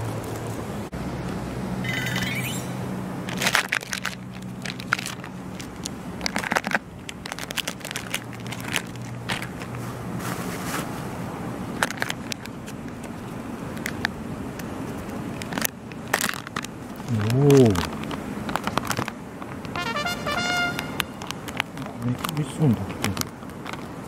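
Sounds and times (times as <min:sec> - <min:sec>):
low steady hum: 0:00.0 - 0:24.0
plastic pouch crinkling: 0:03.3 - 0:09.6, 0:14.8 - 0:20.1.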